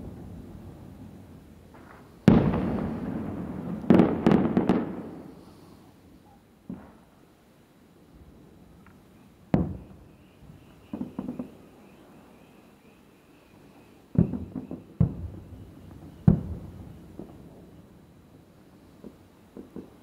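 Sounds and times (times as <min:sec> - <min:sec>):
distant firework bangs: 0:01.7 - 0:05.4, 0:09.5 - 0:12.2, 0:13.8 - 0:17.8, 0:18.9 - 0:20.0
firework pops: 0:08.9 - 0:09.9, 0:10.8 - 0:11.6, 0:14.1 - 0:17.5, 0:19.0 - 0:20.0.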